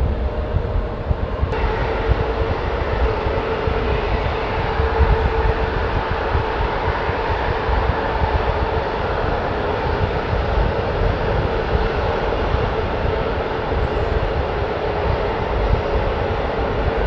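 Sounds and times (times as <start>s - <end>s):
jet engine whine: 0.0s - 17.0s
low engine rumble: 0.0s - 17.0s.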